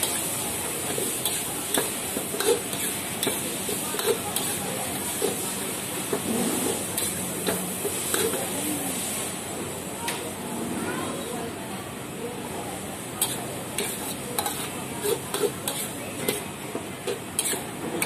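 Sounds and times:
metal utensils scraping a wok: 0.0s - 9.3s, 13.2s - 16.5s, 17.4s - 17.7s
food sizzling: 0.0s - 9.4s, 13.2s - 16.4s.

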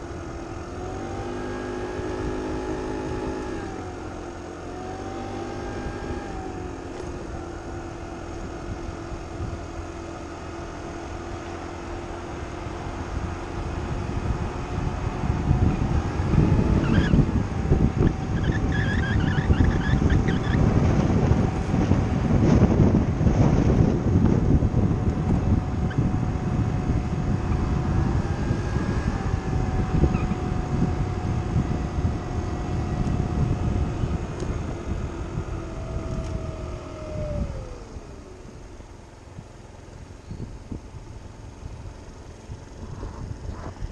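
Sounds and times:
scooter engine drone: 0.0s - 43.9s
wind buffeting microphone: 0.0s - 43.9s
bird chirping: 40.1s - 40.7s.

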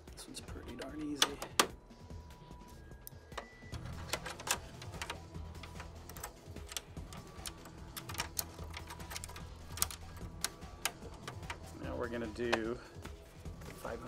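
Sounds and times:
metal bracket and screws clicking: 3.1s - 11.8s.

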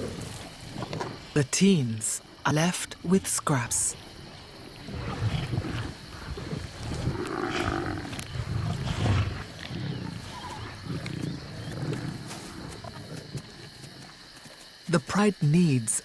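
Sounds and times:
lions growling: 4.2s - 13.7s.

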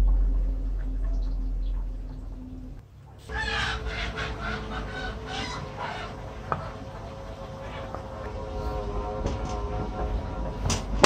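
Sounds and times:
animal calls: 3.2s - 9.0s.

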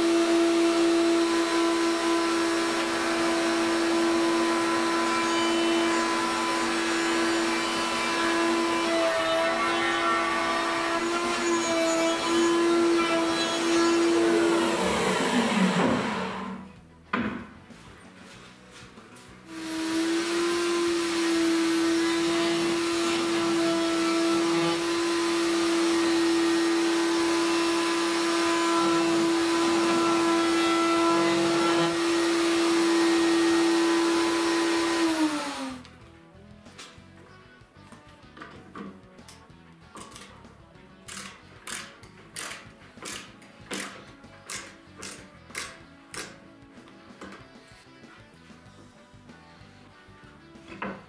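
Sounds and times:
router high-pitched whine: 0.0s - 16.7s, 19.5s - 35.8s.

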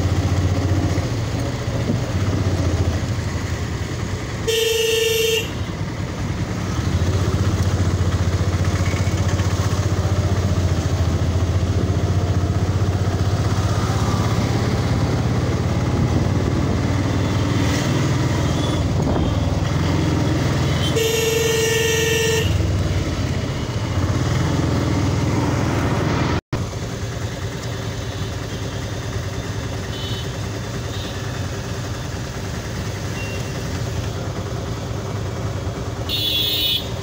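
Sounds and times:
motorcycle engine running: 0.0s - 37.0s
vehicle horn honking: 4.4s - 5.8s, 20.6s - 22.7s, 29.8s - 31.3s, 36.0s - 37.0s.

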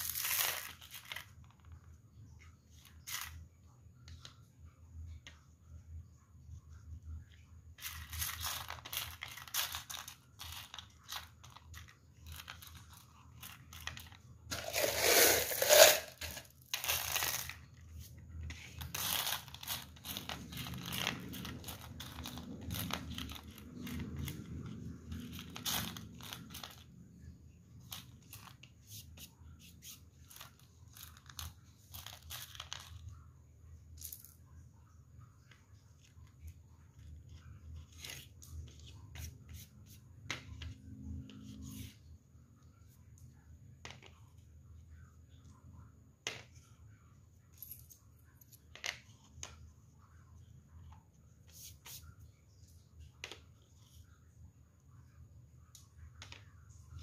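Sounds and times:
pebbles clicking and rattling: 0.0s - 1.8s, 7.8s - 17.8s, 18.5s - 27.1s, 30.2s - 33.2s.

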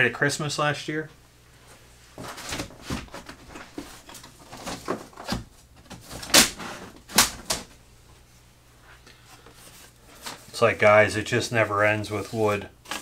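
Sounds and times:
wood strips rustling: 2.2s - 7.8s.

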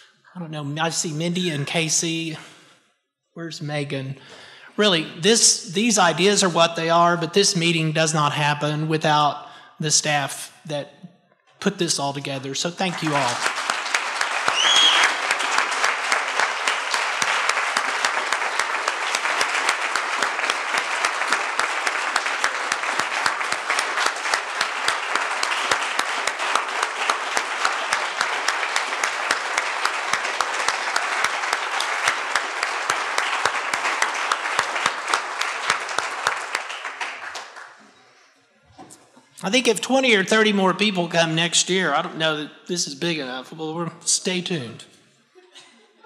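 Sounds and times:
audience applauding: 12.6s - 38.0s
rising whistle: 14.5s - 15.2s.

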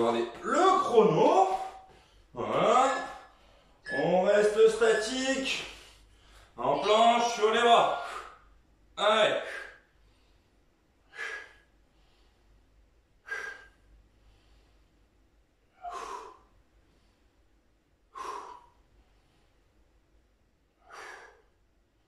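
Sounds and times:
man breathing out hard: 11.0s - 12.2s, 13.2s - 14.6s, 15.7s - 16.6s, 18.1s - 18.8s, 20.8s - 21.6s.

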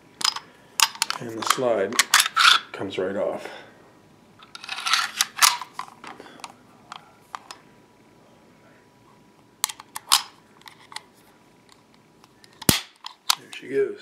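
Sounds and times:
metal pistol parts clicking: 0.2s - 2.6s, 12.6s - 13.5s.

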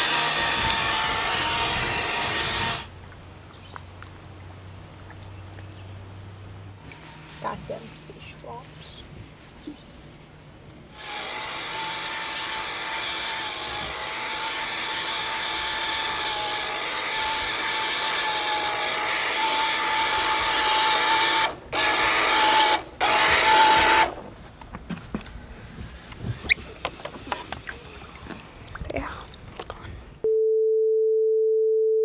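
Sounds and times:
small electric motor whine: 0.0s - 2.9s, 10.9s - 24.2s.

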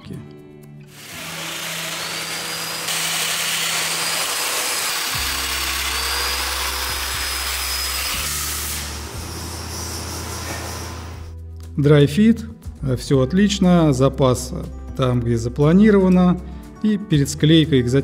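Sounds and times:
joiner motor whine: 1.0s - 11.3s.

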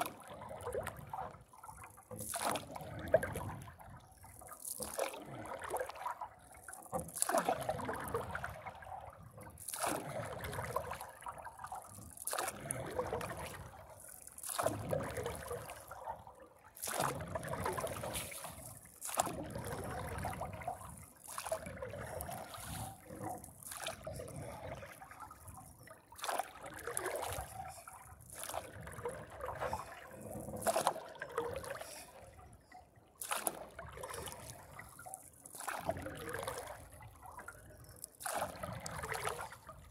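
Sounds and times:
paddle splashing in water: 0.0s - 32.3s, 33.2s - 39.9s.

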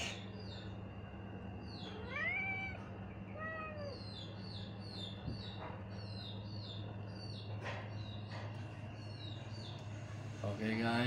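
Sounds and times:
cat meowing: 1.8s - 4.2s.

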